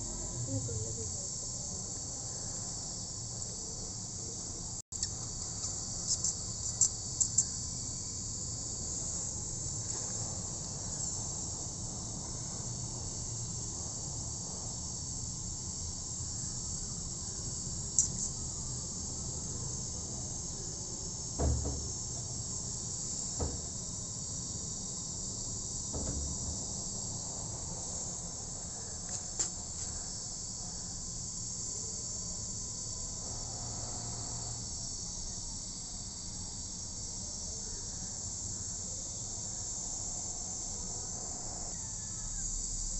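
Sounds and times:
insects chirring: 0:00.0 - 0:42.9
brief knocks: 0:21.4 - 0:21.9, 0:23.4 - 0:23.7, 0:25.9 - 0:26.6.

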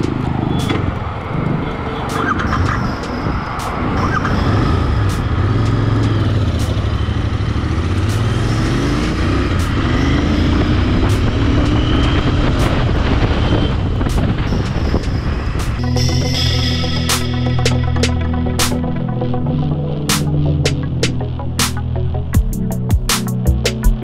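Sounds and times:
motorcycle engine accelerating: 0:00.0 - 0:15.9.

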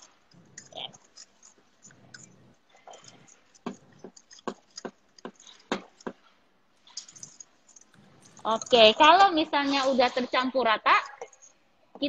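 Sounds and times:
stirring batter: 0:00.0 - 0:10.2
utensil clinking in metal bowl: 0:06.8 - 0:09.4.

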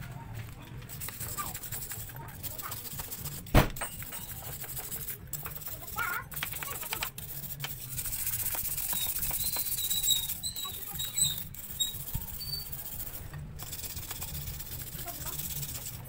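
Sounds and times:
scrubbing tool rasping on metal: 0:00.9 - 0:16.0
short high squeaks: 0:08.8 - 0:12.9.

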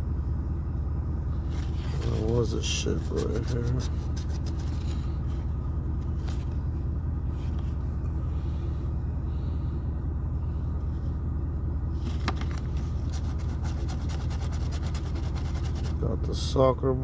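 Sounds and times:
car engine idling: 0:00.0 - 0:17.0
coin scratching a ticket: 0:13.1 - 0:16.0.

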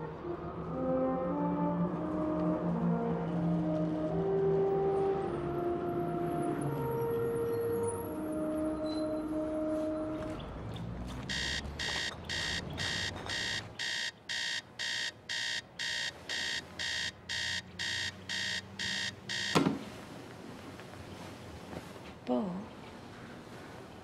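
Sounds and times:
digital alarm clock beeping: 0:11.3 - 0:19.6
thump: 0:19.6 - 0:19.8.

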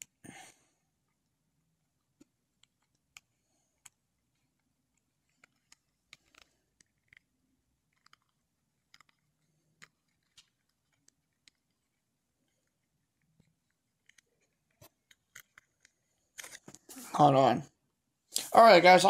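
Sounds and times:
faint small clicks and taps: 0:02.2 - 0:07.3.

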